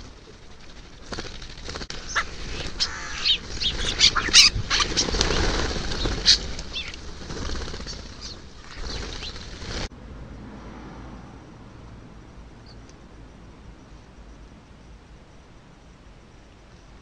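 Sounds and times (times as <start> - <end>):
wings flapping: 0.0 - 9.9
starlings squeaky calls and whistles: 2.0 - 9.5.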